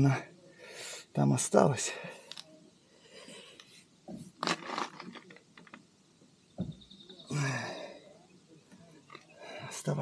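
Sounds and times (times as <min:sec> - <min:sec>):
man sighing and grunting: 0:07.3 - 0:08.0.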